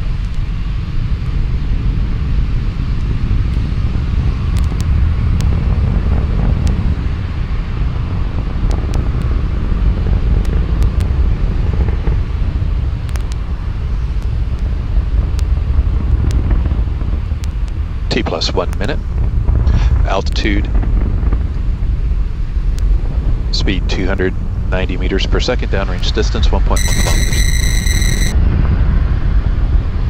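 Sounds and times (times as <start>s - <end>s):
rocket engines rumbling: 1.7s - 28.4s.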